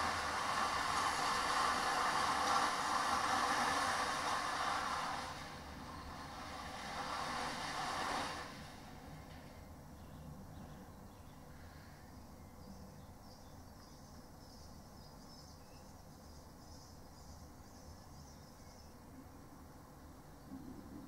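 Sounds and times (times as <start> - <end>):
faint bird chirping: 9.6 - 21.0
low steady rumble: 18.8 - 21.0.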